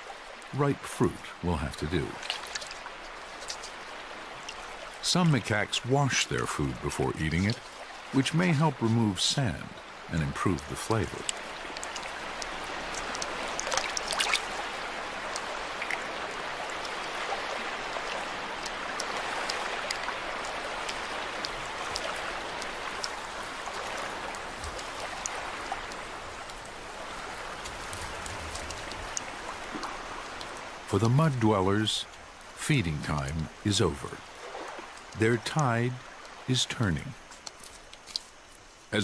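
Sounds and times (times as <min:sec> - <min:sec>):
water trickling and lapping: 0:00.0 - 0:39.0
small clicks and splashes: 0:02.0 - 0:08.4, 0:10.3 - 0:30.8, 0:34.2 - 0:36.5, 0:37.1 - 0:38.7.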